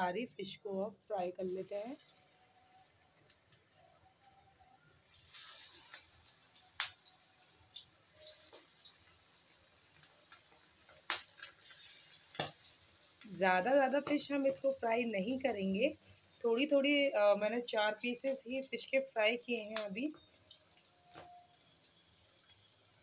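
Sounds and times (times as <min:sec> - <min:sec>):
fish sizzling in hot oil: 0:01.4 - 0:23.0
oil popping and crackling: 0:01.6 - 0:04.0, 0:05.0 - 0:15.4, 0:19.5 - 0:23.0.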